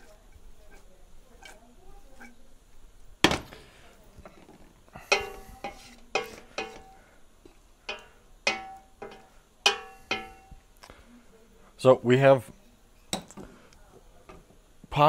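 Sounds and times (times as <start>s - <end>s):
wooden spoon knocking on steel pot: 5.0s - 7.0s, 7.9s - 10.6s.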